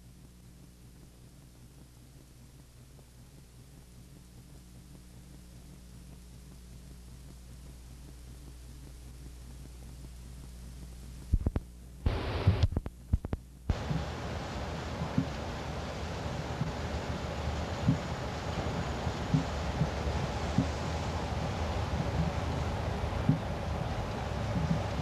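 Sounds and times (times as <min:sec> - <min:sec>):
low electrical hum: 0:00.0 - 0:25.0
sharp clicks and crackling: 0:11.2 - 0:14.0
rushing outdoor noise: 0:13.7 - 0:25.0.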